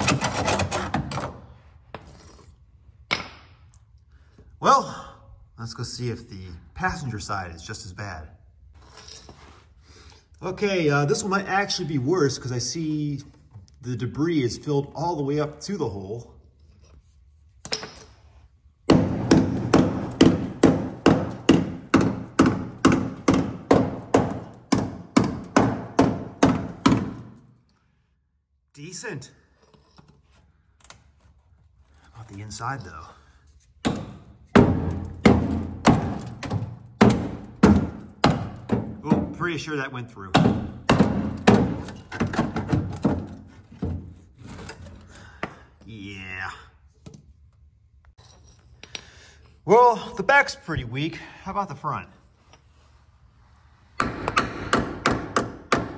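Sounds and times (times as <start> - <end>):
hammer striking steel frame: 18.9 - 27.4, 54.0 - 55.9.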